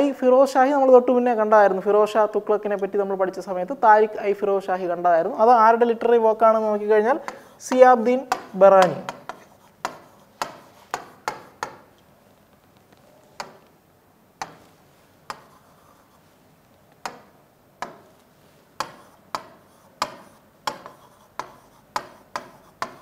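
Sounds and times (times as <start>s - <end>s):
pen tapping on writing board: 7.2s - 11.9s, 13.4s - 13.7s, 14.4s - 15.8s, 16.9s - 18.1s, 18.8s - 23.0s.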